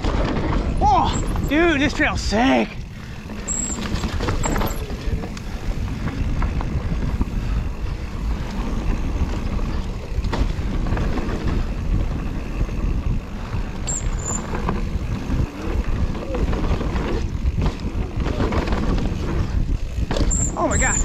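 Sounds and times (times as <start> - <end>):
bike tyres rumbling over dirt: 0.0 - 21.0
wind on microphone: 2.7 - 20.8
sharp knocks from bike: 10.2 - 11.6, 16.6 - 19.3, 20.0 - 20.5.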